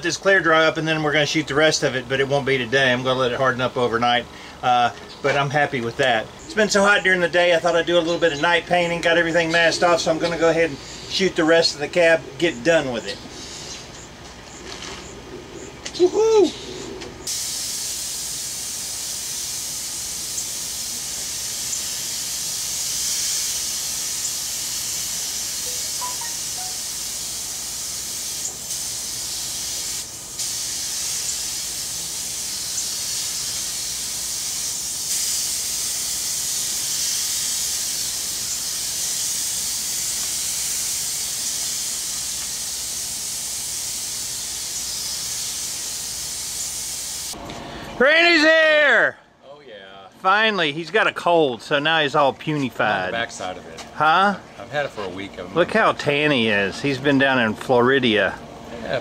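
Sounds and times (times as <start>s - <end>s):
paint spray gun hissing: 17.2s - 47.4s.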